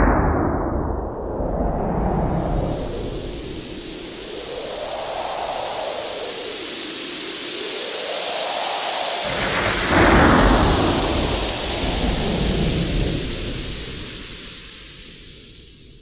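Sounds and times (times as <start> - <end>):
low rumble: 0.0 - 6.6, 9.3 - 15.1.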